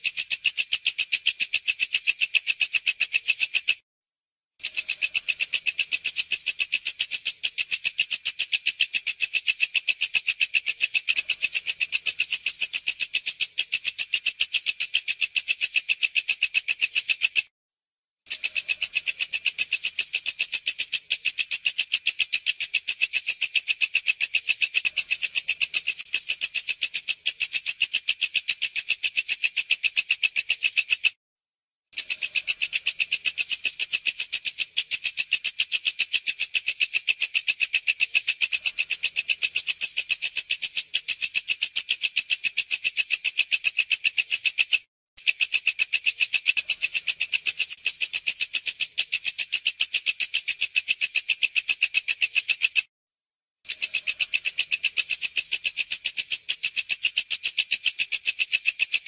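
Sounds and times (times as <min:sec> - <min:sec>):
bush cricket stridulating: 0:18.4 - 0:28.2.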